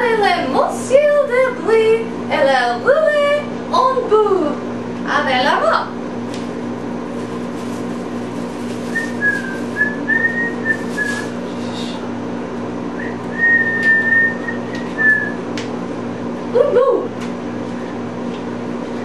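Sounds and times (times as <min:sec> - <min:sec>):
steady low hum: 0:00.0 - 0:19.0
woman whistling: 0:08.9 - 0:11.3, 0:13.0 - 0:15.4.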